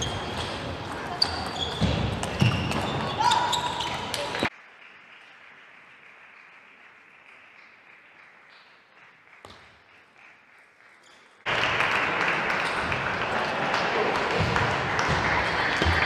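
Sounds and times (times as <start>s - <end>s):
hall noise with voices: 11.5s - 16.0s.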